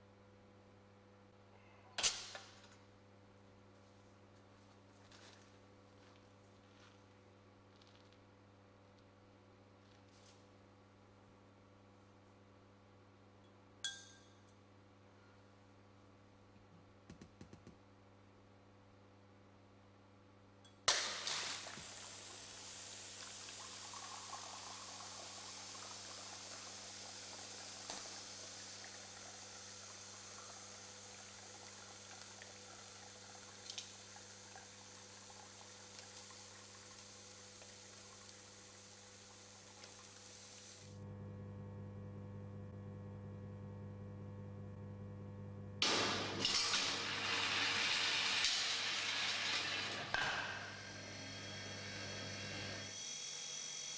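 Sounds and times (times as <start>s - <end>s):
wine pouring into glasses: 21.1s - 38.3s
low steady hum: 41.0s - 45.8s.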